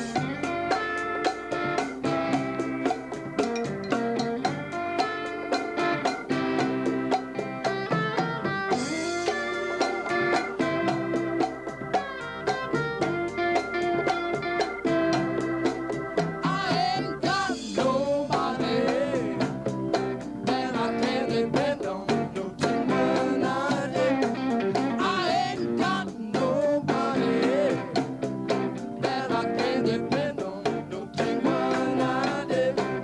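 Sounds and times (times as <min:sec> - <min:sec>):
live rock band playing: 0:00.0 - 0:33.0
woman singing: 0:16.6 - 0:19.5, 0:20.4 - 0:27.9, 0:29.0 - 0:33.0.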